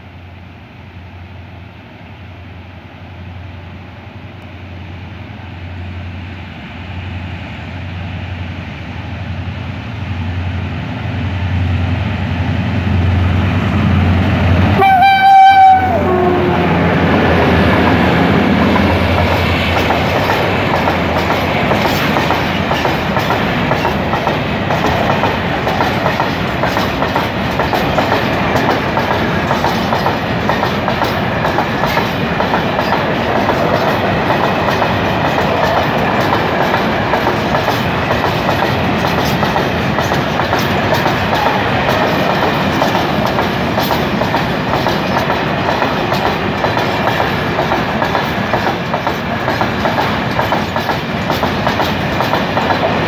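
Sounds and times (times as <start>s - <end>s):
train wheels rolling on rails: 1.0s - 53.0s
wheels clicking over rail joints: 18.3s - 53.0s.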